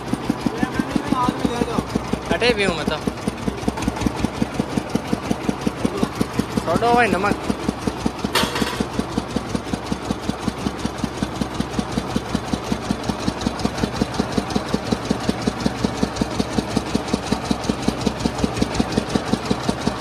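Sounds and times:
engine idling: 0.0 - 20.0.

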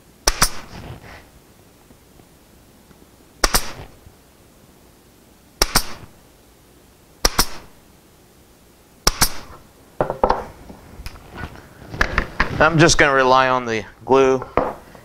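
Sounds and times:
pin nailer firing: 0.2 - 0.8, 3.4 - 3.9, 5.6 - 6.1, 7.2 - 7.8, 9.0 - 9.6.

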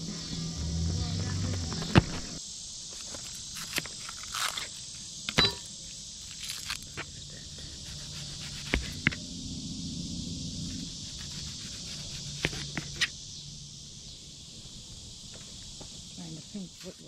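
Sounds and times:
insects chirping: 0.0 - 17.0.

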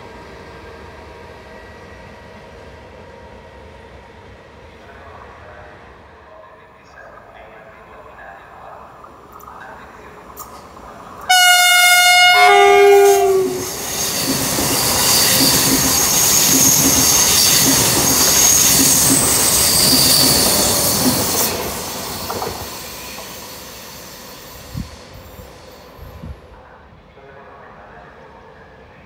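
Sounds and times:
high train whine: 0.0 - 29.0
train passing with loud rush: 0.0 - 29.0
two-note train horn: 11.3 - 13.8.

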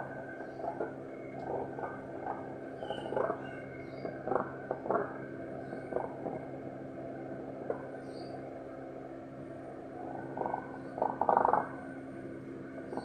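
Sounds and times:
cranes calling softly: 0.0 - 6.6, 10.0 - 12.0
steady low hum: 0.0 - 13.0.

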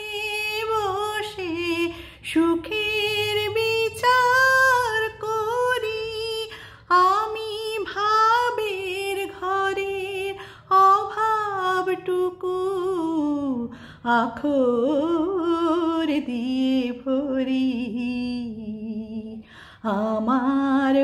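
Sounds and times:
woman singing with vibrato: 0.0 - 21.0
singer breathing: 1.9 - 2.2, 6.5 - 6.9, 13.7 - 14.1, 19.4 - 19.9.

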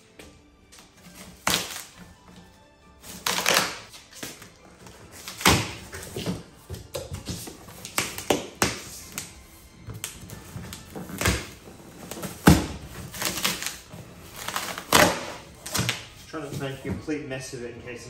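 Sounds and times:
quiet background music: 0.0 - 18.0
cardboard flaps ripping and scraping: 1.0 - 2.1, 3.0 - 9.3, 9.9 - 16.9
knife slitting packing tape: 1.2 - 2.0, 3.0 - 4.5, 5.1 - 6.3, 10.0 - 16.0.

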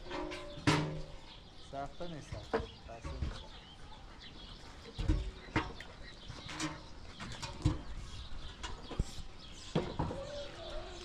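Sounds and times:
birds chirping: 0.0 - 11.0
knocks and thumps: 2.2 - 3.6, 4.9 - 9.1, 9.7 - 10.3.

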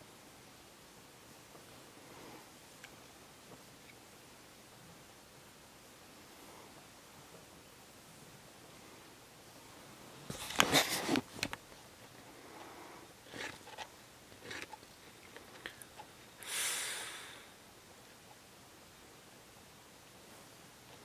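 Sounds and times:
handling and rustling noises: 10.2 - 16.1.

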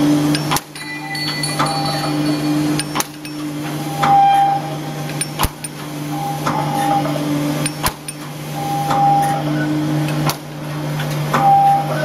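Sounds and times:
machine hum: 0.0 - 12.0
sharp metallic clank: 0.4 - 4.3
short tone: 0.8 - 4.8.

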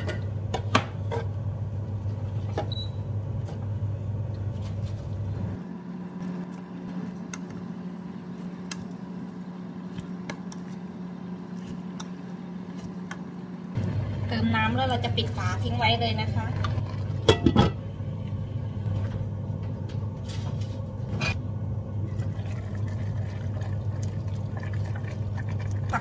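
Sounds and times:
induction hob humming: 0.0 - 26.0.

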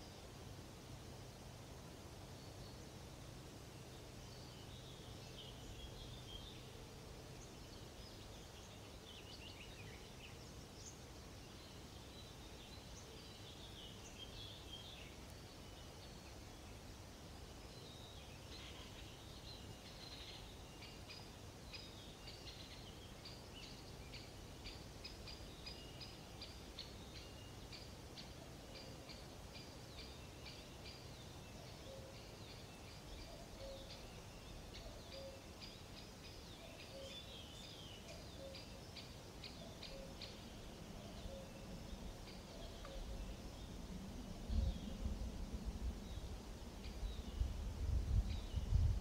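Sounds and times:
low steady background noise: 0.0 - 49.0
songbirds singing: 0.0 - 49.0.

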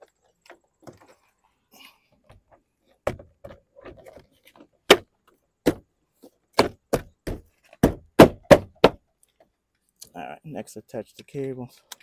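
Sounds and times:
plastic panel knocking into place: 3.0 - 3.6, 6.6 - 9.0.

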